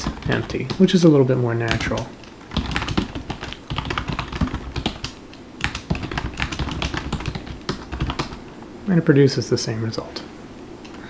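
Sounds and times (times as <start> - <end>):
typing on keyboard: 0.0 - 0.9, 1.7 - 8.4.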